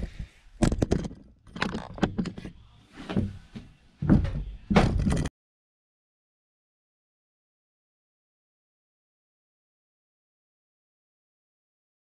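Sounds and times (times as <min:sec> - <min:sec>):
wooden thuds on boards: 0:04.0 - 0:05.3.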